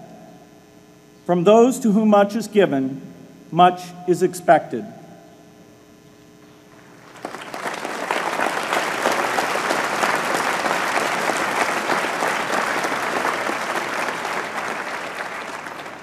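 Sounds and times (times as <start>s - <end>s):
audience applauding: 6.8s - 16.0s.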